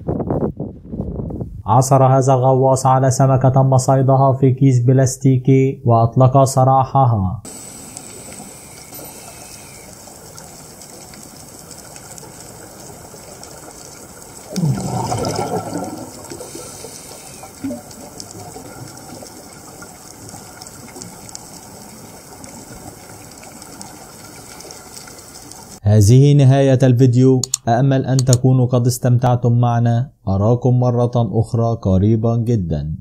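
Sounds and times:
scuba exhaust bubbles gushing: 7.5s - 25.8s
steady underwater hiss: 7.5s - 25.8s.

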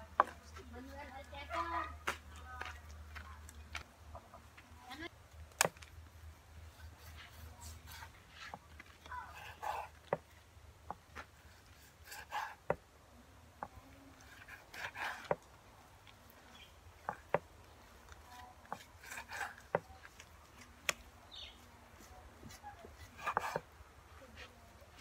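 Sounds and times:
knife scraping through meat: 18.2s - 20.6s, 22.0s - 23.6s.

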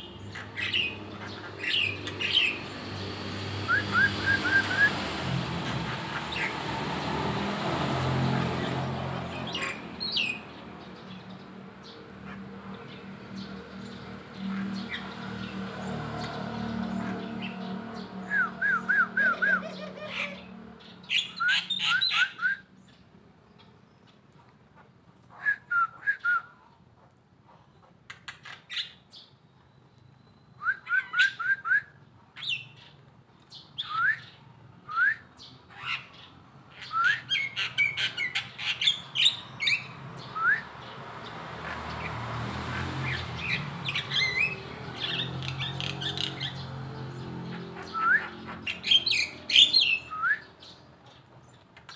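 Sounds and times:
songbird chirping: 0.0s - 24.6s.

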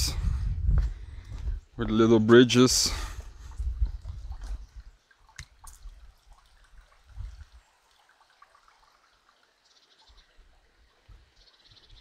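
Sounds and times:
water trickling and dripping: 3.2s - 12.0s.

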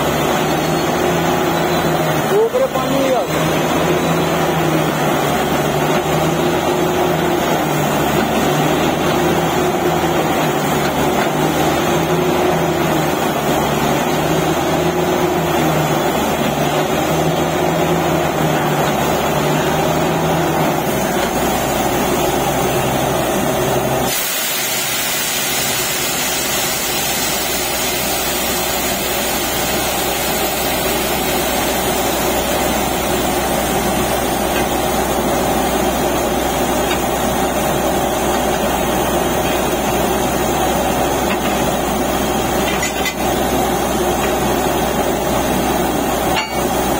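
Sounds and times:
drilling rig engine: 0.0s - 46.9s
air hiss: 24.0s - 31.8s.

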